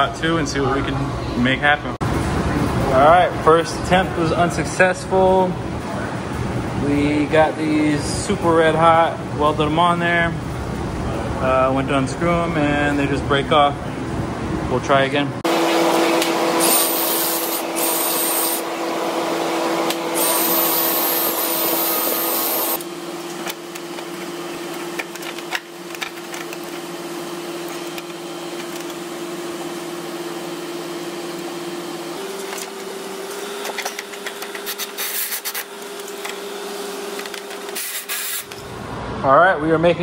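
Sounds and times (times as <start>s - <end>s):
cordless drill whining: 20.1s - 22.8s.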